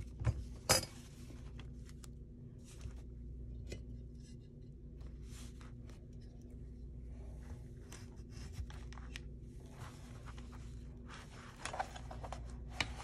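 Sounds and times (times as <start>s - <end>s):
steady low hum: 0.0s - 13.0s
paper rustling: 7.8s - 13.0s.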